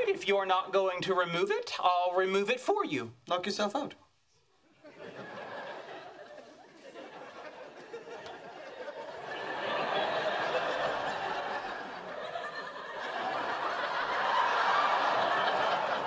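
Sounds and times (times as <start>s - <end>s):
studio audience laughing: 4.8s - 16.0s.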